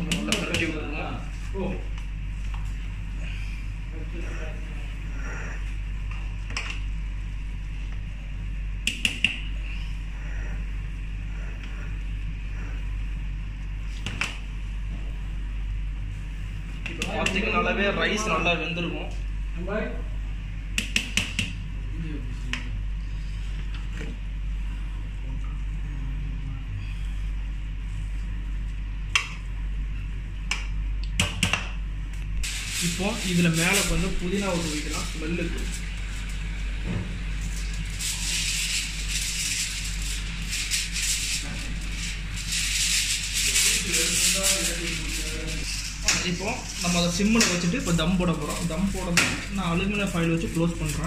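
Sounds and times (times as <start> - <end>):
steady low hum: 0.0 - 51.0
rice scraping against pot: 37.3 - 49.1.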